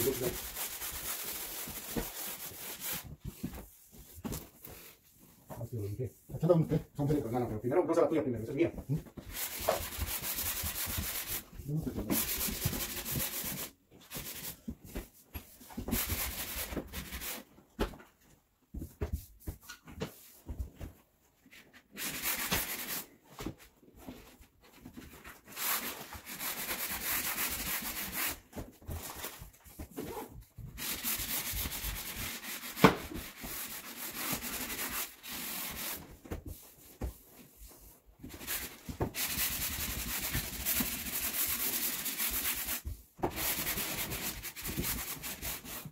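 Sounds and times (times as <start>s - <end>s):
hand sanding wood: 0.0s - 4.9s, 8.6s - 17.5s, 21.6s - 23.2s, 24.9s - 45.9s.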